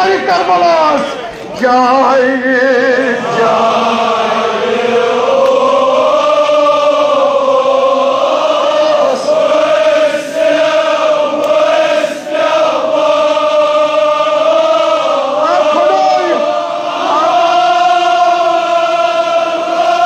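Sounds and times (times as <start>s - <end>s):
crowd of men chanting: 0.0s - 20.0s.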